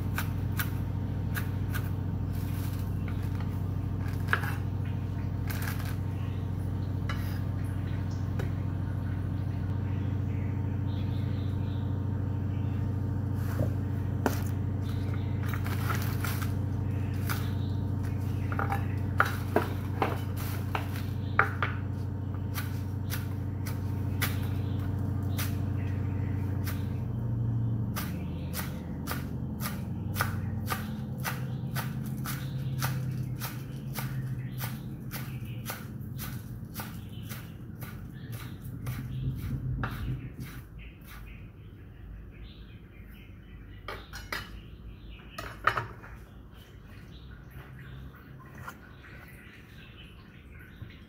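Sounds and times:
steady low hum: 0:00.0 - 0:51.0
knife chopping on wooden board: 0:28.0 - 0:41.2.

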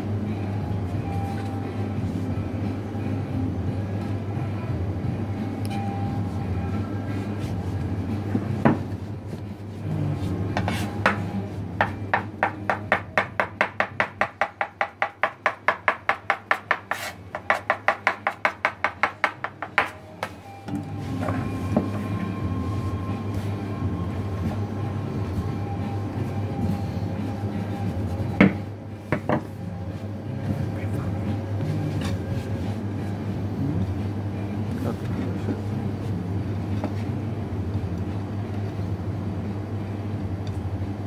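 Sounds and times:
steady low hum: 0:00.0 - 0:41.0
knife chopping dough on counter: 0:10.6 - 0:20.4.

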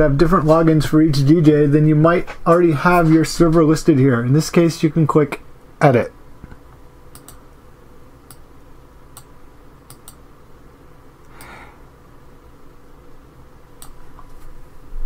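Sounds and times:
faint steady hum: 0:00.0 - 0:15.0
computer mouse clicks: 0:06.5 - 0:07.4, 0:09.1 - 0:09.3, 0:09.9 - 0:10.2, 0:11.2 - 0:11.6, 0:13.8 - 0:14.4.

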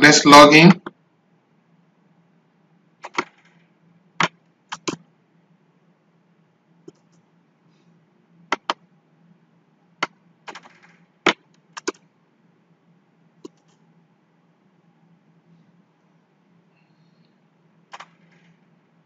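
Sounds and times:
faint low hum: 0:00.0 - 0:19.0
mouse and keyboard clicks: 0:03.0 - 0:03.6, 0:04.2 - 0:05.0, 0:06.8 - 0:07.2, 0:08.5 - 0:08.8, 0:10.0 - 0:12.1, 0:13.4 - 0:13.8, 0:17.9 - 0:18.6.

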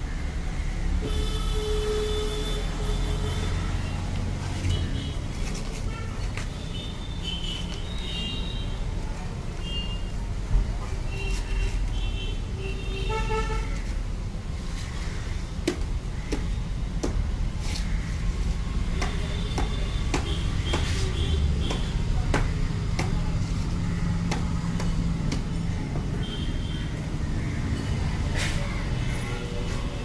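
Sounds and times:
traffic hum: 0:00.0 - 0:30.0
car horns tooting: 0:01.0 - 0:03.8.

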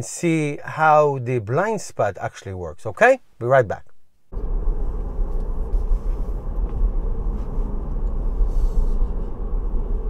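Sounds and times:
road and tyre noise in car: 0:04.3 - 0:10.0.

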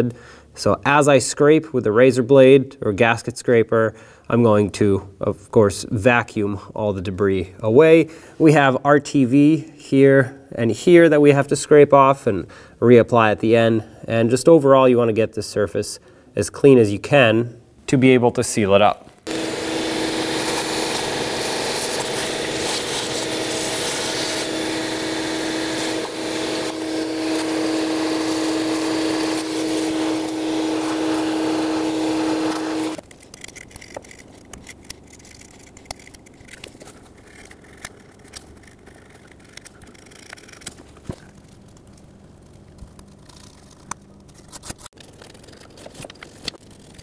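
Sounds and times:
vacuum running: 0:19.3 - 0:33.0.

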